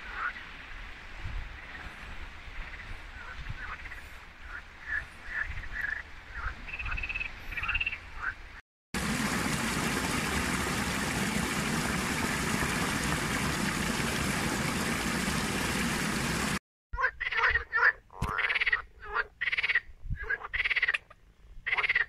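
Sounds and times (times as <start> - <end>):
frogs croaking: 2.6 - 8.6, 17.0 - 22.0
water pouring down small waterfall: 9.0 - 16.6.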